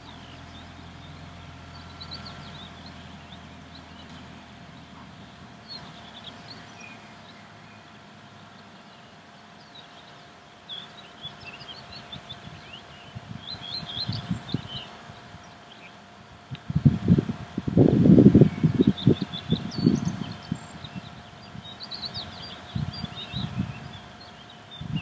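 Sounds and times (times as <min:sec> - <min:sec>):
faint steady hum: 0:00.0 - 0:25.0
small birds chirping: 0:00.0 - 0:25.0
wind on microphone: 0:12.1 - 0:15.5, 0:16.4 - 0:25.0.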